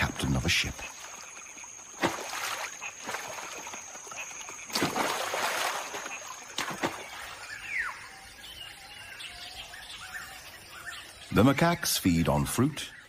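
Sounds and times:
monkeys splashing into river: 0:00.9 - 0:07.5.

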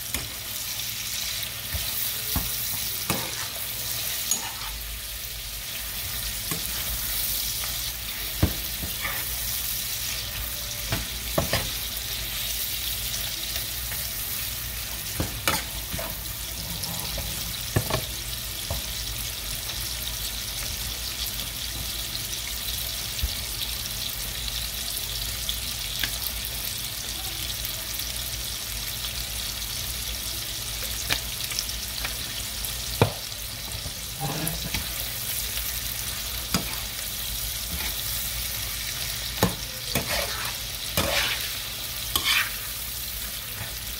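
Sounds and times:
food sizzling in a skillet: 0:00.0 - 0:43.9.

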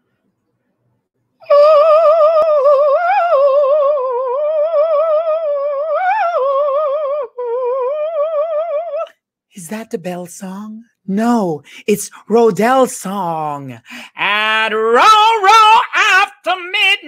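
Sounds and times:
person singing a high note: 0:01.4 - 0:09.2.

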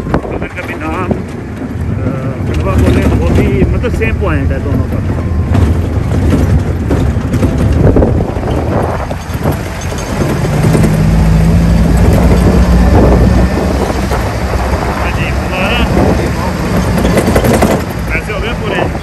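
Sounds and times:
jeep engine running: 0:00.0 - 0:19.0
wind buffeting microphone: 0:00.0 - 0:19.0
knocks and jolts from rough ground: 0:00.6 - 0:14.4.

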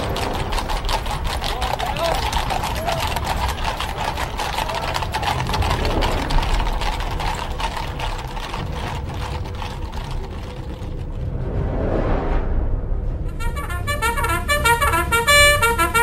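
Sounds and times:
rapid irregular clicks: 0:00.0 - 0:11.3
low rumble: 0:00.0 - 0:14.6.

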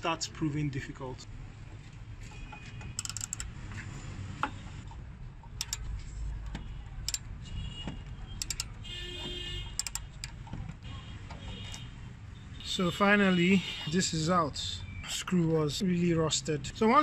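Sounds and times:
ratchet wrench clicking: 0:03.0 - 0:03.5, 0:05.6 - 0:05.9, 0:07.0 - 0:07.3, 0:08.4 - 0:08.8, 0:09.8 - 0:10.4.

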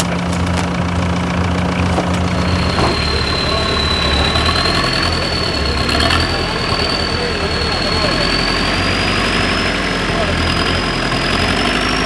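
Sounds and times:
engine running at low revs: 0:00.0 - 0:12.0
high-pitched whine: 0:02.1 - 0:11.2.

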